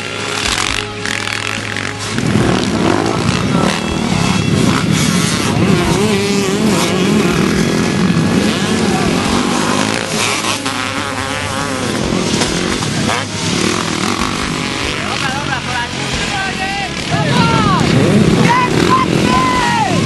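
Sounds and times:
dirt bike engines revving: 0:00.0 - 0:20.0.

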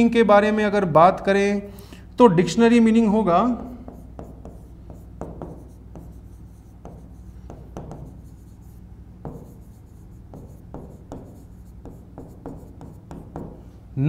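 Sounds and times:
low steady hum: 0:00.0 - 0:14.0
stylus tapping and scratching: 0:03.6 - 0:13.6.

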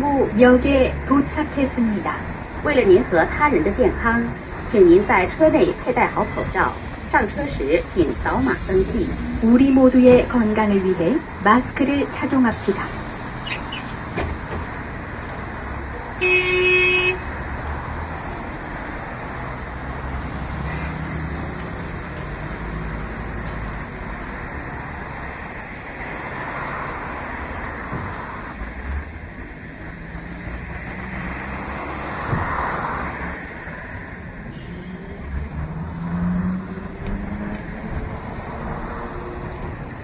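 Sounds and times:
bus engine and road noise: 0:00.0 - 0:40.0
vehicle horn honk: 0:16.2 - 0:17.3, 0:34.5 - 0:35.0.

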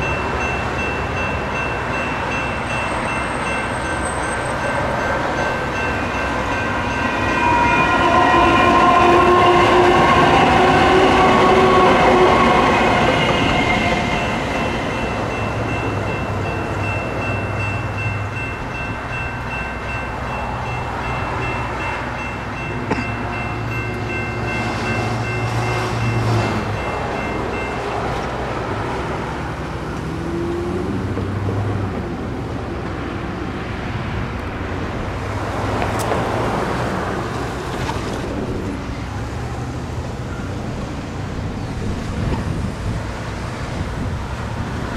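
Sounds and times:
crossing bell ringing: 0:00.0 - 0:30.6, 0:38.8 - 0:41.6
train hum: 0:00.0 - 0:44.9
road vehicle passing: 0:20.5 - 0:44.9.

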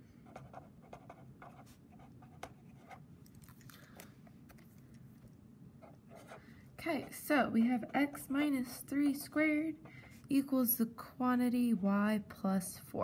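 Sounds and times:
felt-tip pen scratching on paper: 0:05.8 - 0:09.4.

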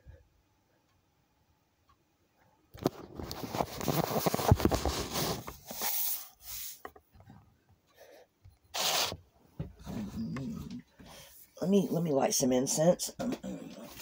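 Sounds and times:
phone handling rubbing and scraping: 0:02.8 - 0:07.0.

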